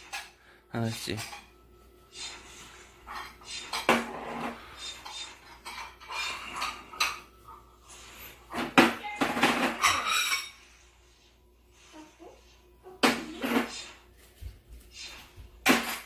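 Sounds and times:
ceramic bowls clinking: 0:09.4 - 0:10.7.

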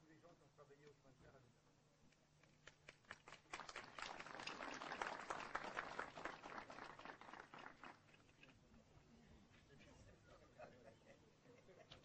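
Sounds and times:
people applauding: 0:02.6 - 0:08.2.

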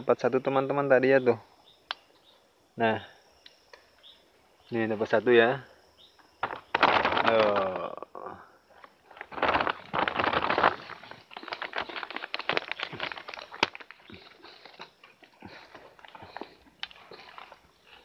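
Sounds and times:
plastic bag crinkling: 0:09.0 - 0:17.7.

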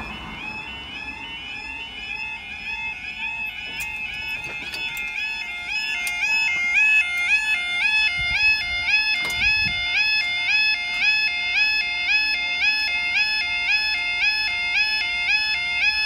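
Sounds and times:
level crossing two-tone alarm: 0:00.0 - 0:16.0.

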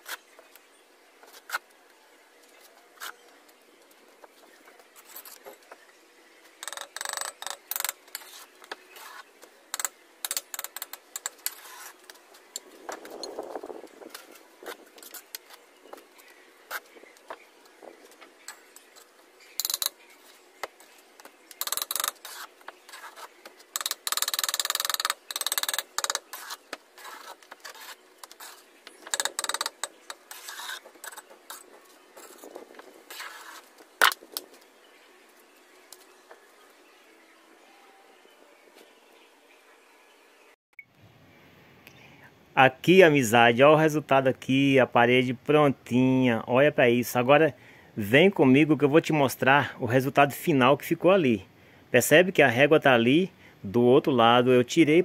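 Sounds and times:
trowel scraping mortar and bricks: 0:06.6 - 0:15.6, 0:18.5 - 0:34.3.

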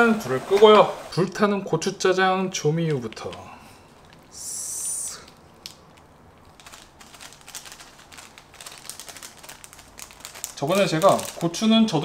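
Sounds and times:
seasoning packet crinkling: 0:02.8 - 0:04.4, 0:05.2 - 0:12.0.

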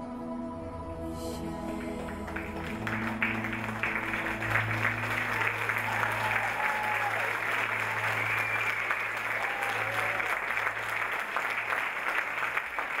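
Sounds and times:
audience applauding: 0:01.6 - 0:13.0.

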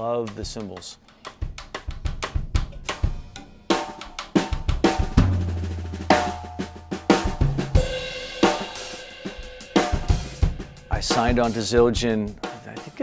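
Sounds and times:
drum kit groove: 0:00.0 - 0:13.0
low drum ringing: 0:04.7 - 0:12.5.

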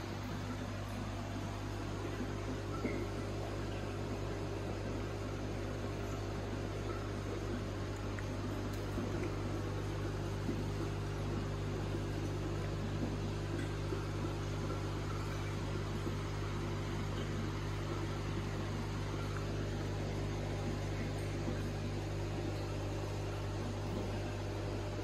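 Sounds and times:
aquarium equipment humming: 0:00.0 - 0:25.0.

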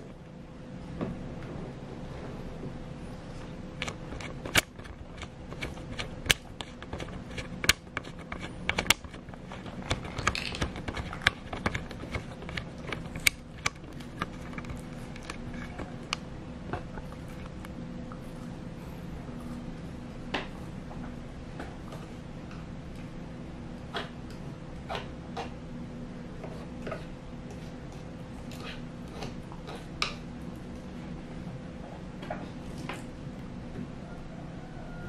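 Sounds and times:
tortoise crunching vegetables: 0:03.8 - 0:20.0.

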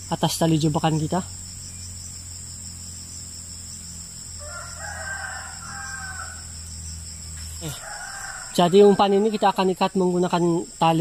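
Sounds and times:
insects droning: 0:00.0 - 0:11.0
rooster crowing: 0:04.4 - 0:06.8, 0:07.4 - 0:09.9.

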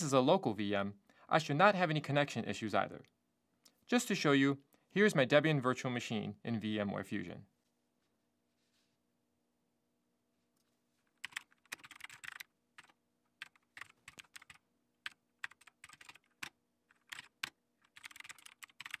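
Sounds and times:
typing on computer keyboard: 0:11.1 - 0:19.0.

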